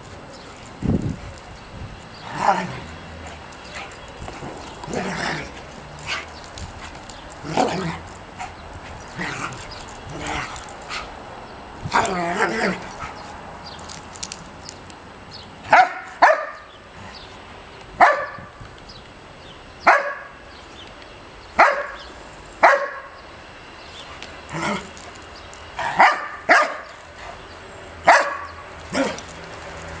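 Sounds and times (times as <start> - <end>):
dogs barking in play: 2.2 - 11.2, 11.8 - 13.4, 15.6 - 16.7, 18.0 - 18.6, 21.6 - 23.2, 25.7 - 30.0.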